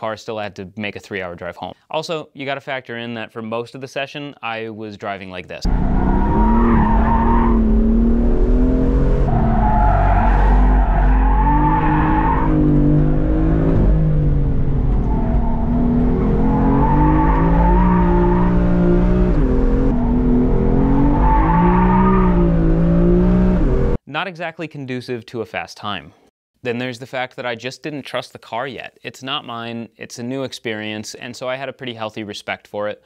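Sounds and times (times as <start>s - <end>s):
tyres squealing: 9.3s - 13.6s.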